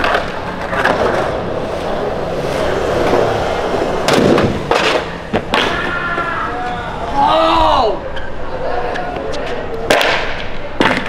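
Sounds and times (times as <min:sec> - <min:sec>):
skateboard clacks: 0:00.0 - 0:02.1, 0:03.8 - 0:06.3, 0:08.9 - 0:11.0
skateboard wheels rolling on concrete: 0:00.0 - 0:11.0.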